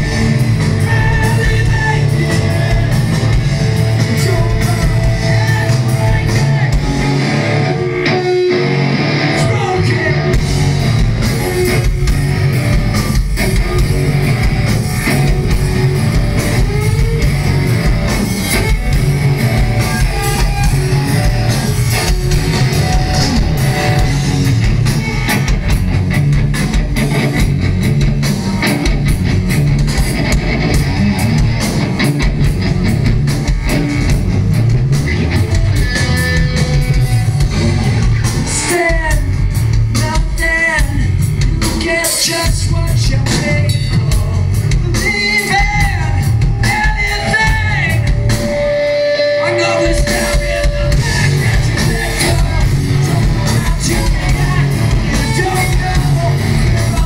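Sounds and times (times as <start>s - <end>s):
bass: 0.0s - 57.0s
distorted electric guitars: 0.0s - 57.0s
drum kit: 0.0s - 57.0s
person singing: 4.0s - 8.5s, 35.9s - 57.0s.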